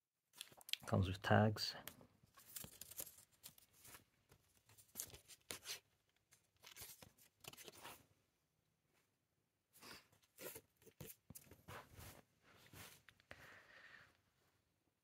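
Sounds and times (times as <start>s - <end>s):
cardboard tags rustling: 2.3s - 8.0s.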